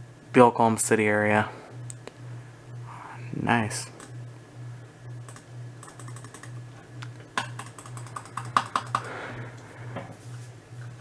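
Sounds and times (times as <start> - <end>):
low pulsing hum: 0.0 - 11.0
keyboard clicking: 5.2 - 6.6, 7.4 - 9.1.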